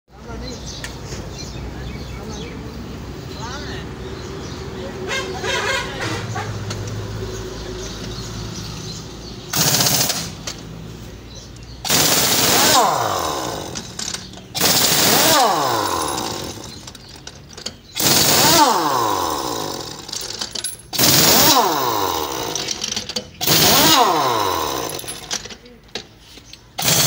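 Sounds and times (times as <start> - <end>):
pneumatic impact wrench hammering: 9.5 - 10.7, 11.8 - 27.0.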